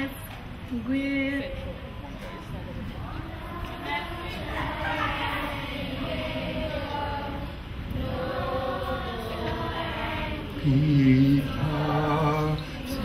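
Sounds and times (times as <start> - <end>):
crowd singing together: 2.9 - 13.0.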